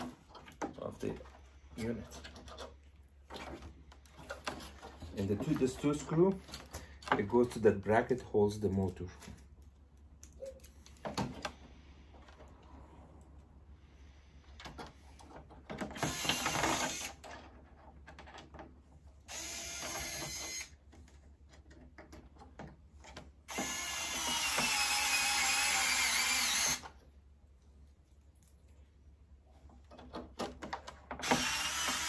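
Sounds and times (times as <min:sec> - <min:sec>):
power drill driving screws: 0:15.9 - 0:17.2, 0:19.3 - 0:20.8, 0:23.5 - 0:26.9, 0:31.2 - 0:32.0.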